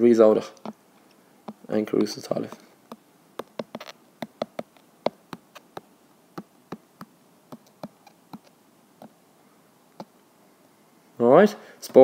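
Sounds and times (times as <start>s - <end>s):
stylus tapping on glass screen: 2.9s - 9.2s.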